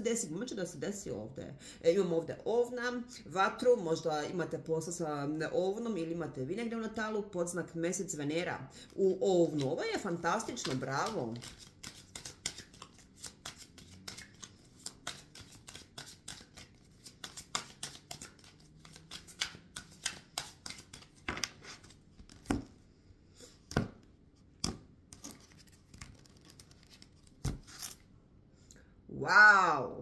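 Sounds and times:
cards being shuffled: 8.8 - 22.8, 24.6 - 28.0.

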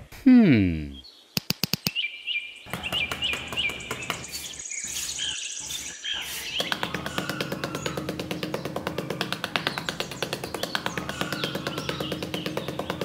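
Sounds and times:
bird-like chirping: 0.7 - 13.0
sharp clicks: 1.4 - 2.0.

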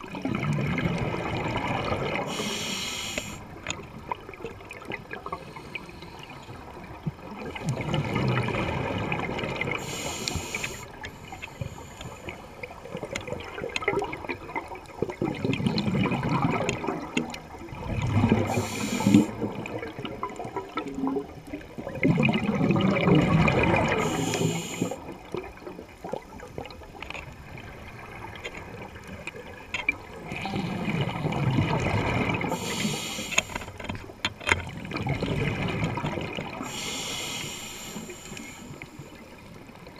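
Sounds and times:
exhaled air bubbling underwater: 0.0 - 39.9
regulator inhalation hiss: 2.2 - 3.5, 9.8 - 12.6, 18.4 - 19.3, 23.9 - 25.0, 32.5 - 33.8, 36.6 - 39.2.

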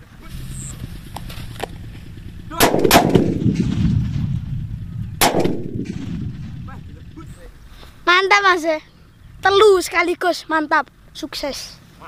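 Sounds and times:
firecrackers banging: 0.3 - 7.4.

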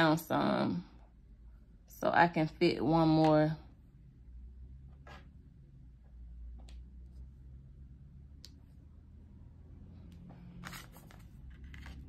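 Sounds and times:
low room hum: 0.0 - 12.0
cards sliding on wooden table: 10.2 - 12.0.

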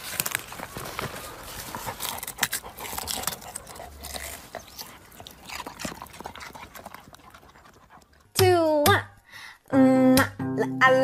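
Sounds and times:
rustling leaves: 0.0 - 6.1
dog digging in soil: 0.0 - 8.3.

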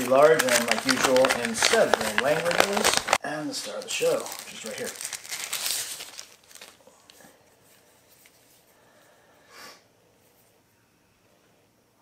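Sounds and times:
plastic wrapping crinkling: 0.0 - 7.2.

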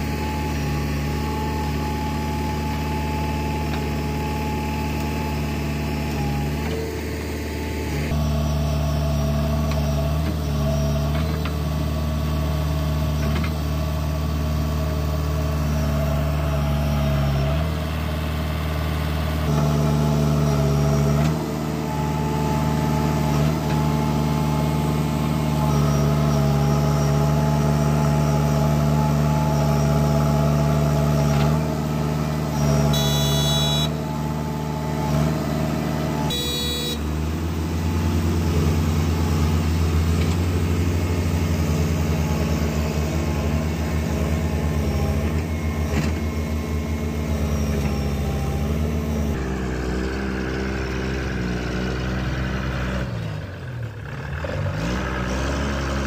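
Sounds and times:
diesel backhoe engine under load: 0.0 - 56.0
throbbing truck diesel engine: 0.0 - 56.0
short high-pitched squeals: 32.5 - 34.2, 36.3 - 37.1.

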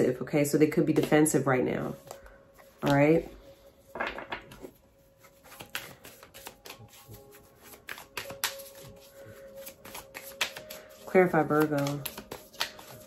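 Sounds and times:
faint background music: 0.0 - 13.0
cards being shuffled: 4.5 - 13.0.

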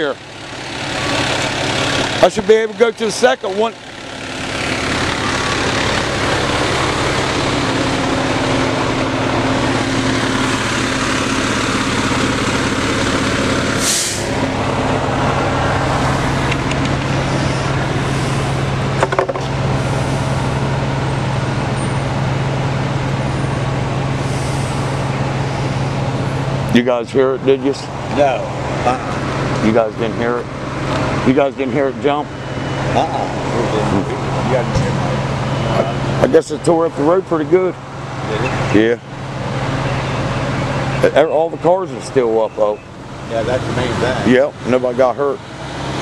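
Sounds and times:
diesel engine running: 0.0 - 46.0
sharp hiss: 13.8 - 14.3.

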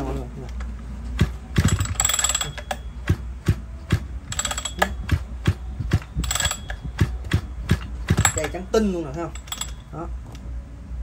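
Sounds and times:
engine turned over by hand: 1.2 - 8.7.

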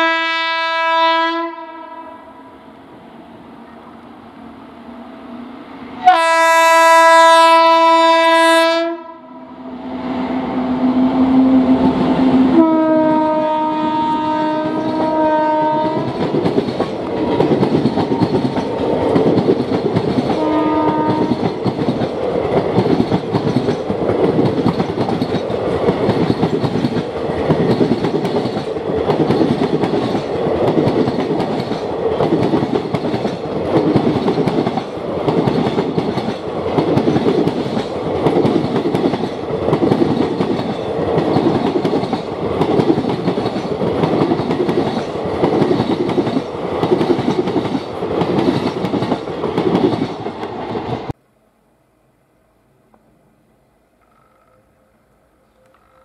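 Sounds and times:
train horn note: 0.0 - 2.5, 6.0 - 16.3, 20.4 - 21.4
train wheels clattering over rail joints: 15.9 - 51.0.

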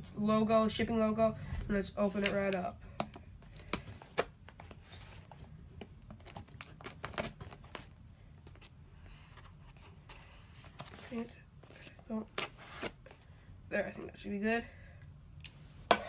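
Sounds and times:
tape and cardboard tearing: 6.2 - 7.8.

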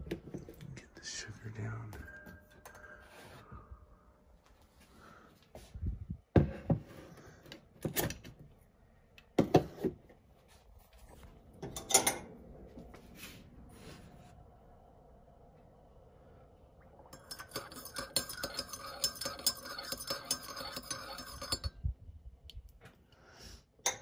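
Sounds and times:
spoon in sugar: 17.2 - 21.8.

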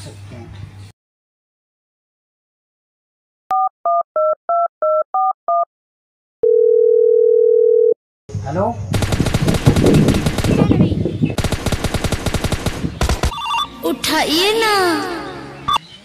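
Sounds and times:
steady phone tone: 6.4 - 8.0, 13.3 - 13.8
fast-pulsing phone ring: 13.3 - 13.7
touch-tone keypad beeps: 13.3 - 13.7.

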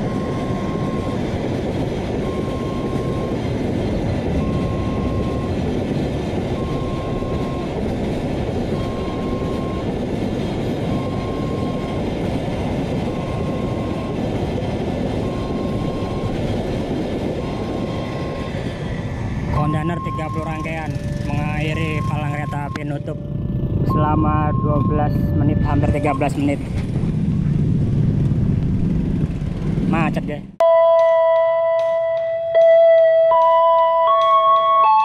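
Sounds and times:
level crossing warning alarm: 0.0 - 1.4, 2.2 - 3.5, 4.4 - 5.6, 6.5 - 10.2, 10.8 - 12.2, 13.0 - 14.4, 15.1 - 16.6, 17.3 - 18.7, 19.4 - 26.4, 30.6 - 35.0
freight train wheels on rails: 0.0 - 23.9.

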